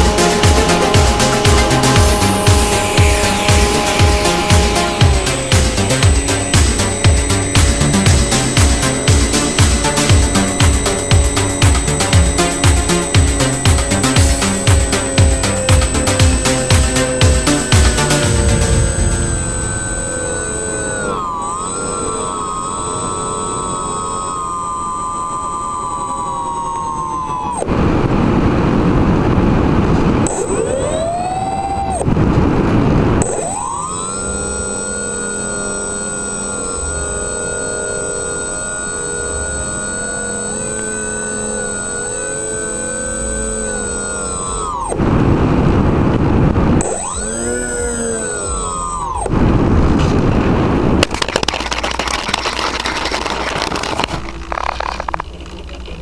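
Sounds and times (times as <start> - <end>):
electric motors whining: 0.0 - 56.0
wind rushing over microphone: 27.4 - 33.3, 44.9 - 47.7, 49.2 - 51.0
fuselage scraping over gravel: 51.0 - 56.0.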